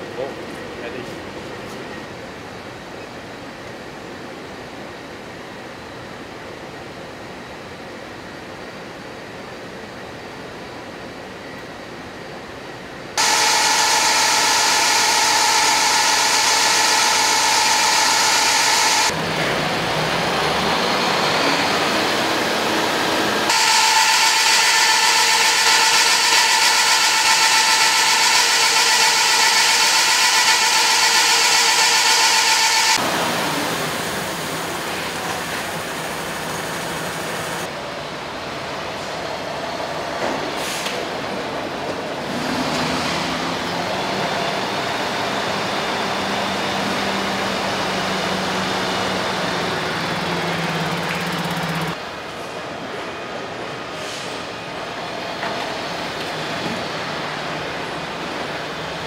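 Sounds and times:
high whining tones: 0:13.2 - 0:19.2, 0:20.3 - 0:37.7, 0:47.8 - 0:52.0
truck engine running on rollers: 0:25.0 - 0:37.7, 0:42.3 - 0:52.0.

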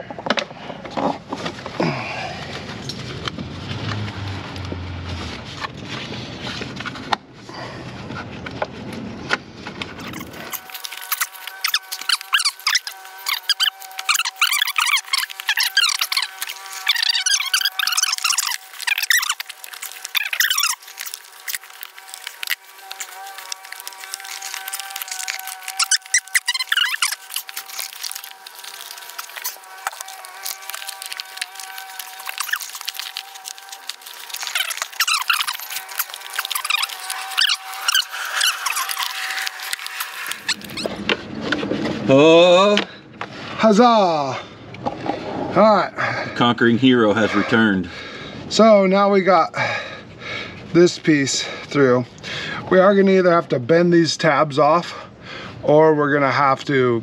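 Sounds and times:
squeaky rubbing: 0:10.0 - 0:41.1.

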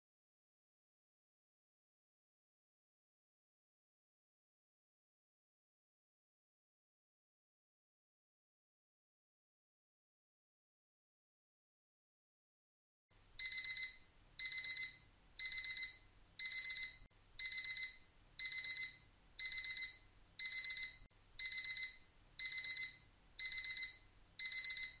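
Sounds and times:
alarm clock beeping: 0:13.4 - 0:25.0.

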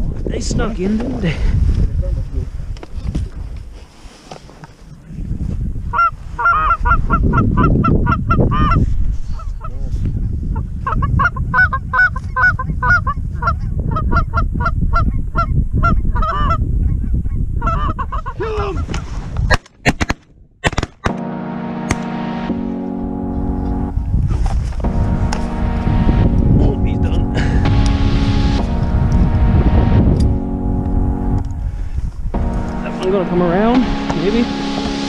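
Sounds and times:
wind rumble on microphone: 0:00.0 - 0:03.8, 0:04.8 - 0:19.6, 0:23.4 - 0:32.7
music: 0:21.1 - 0:35.0.

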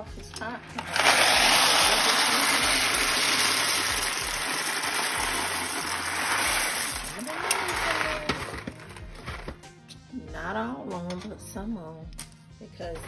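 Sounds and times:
dry pasta pouring into pot: 0:00.7 - 0:09.5.

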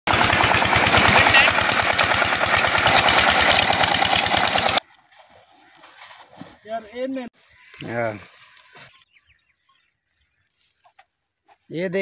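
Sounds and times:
diesel pump engine running: 0:00.1 - 0:04.8.

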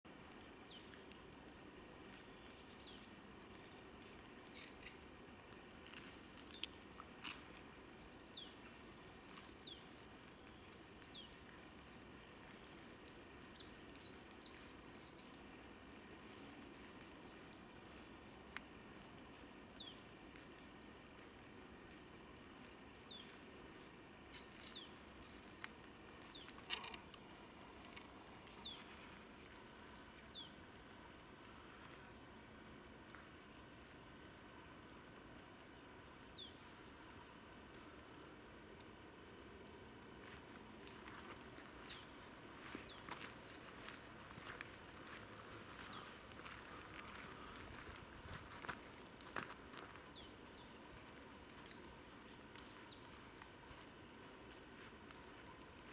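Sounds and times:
faint steady hiss: 0:00.1 - 0:55.9
small birds trilling: 0:21.4 - 0:38.6, 0:39.4 - 0:48.8.

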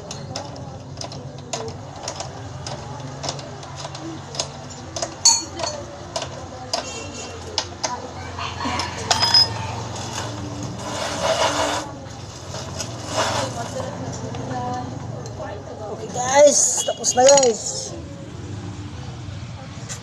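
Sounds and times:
hand tools clinking on metal: 0:00.0 - 0:08.0, 0:08.8 - 0:10.4, 0:16.5 - 0:17.9
short metallic rings: 0:08.9 - 0:10.3.

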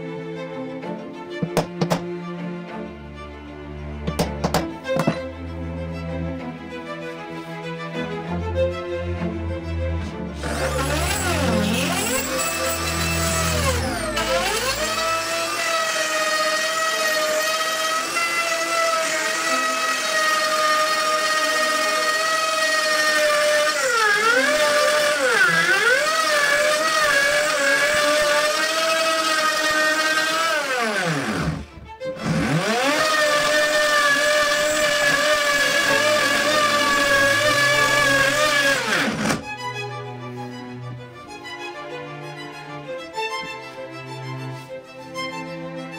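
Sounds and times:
router motor whining: 0:04.0 - 0:05.3, 0:10.4 - 0:39.9.

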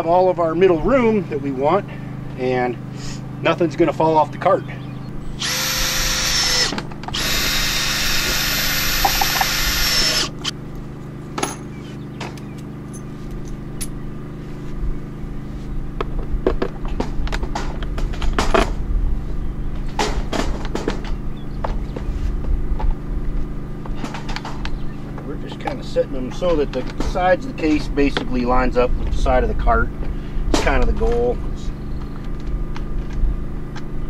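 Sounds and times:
cordless drill motor whine: 0:05.2 - 0:10.6.

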